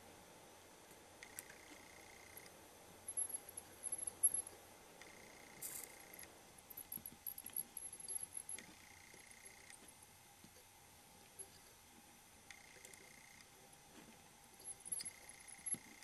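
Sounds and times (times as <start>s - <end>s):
faint high steady tone: 1.3s - 11.9s, 14.5s - 16.0s.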